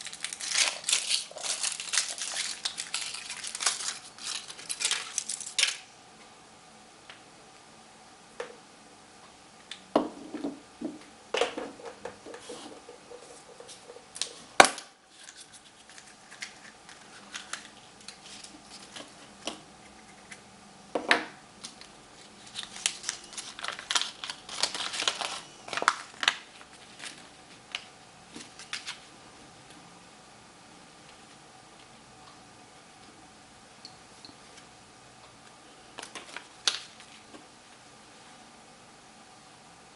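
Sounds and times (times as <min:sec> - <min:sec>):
paper crinkling: 0:00.0 - 0:05.8, 0:15.1 - 0:19.2, 0:21.7 - 0:29.1.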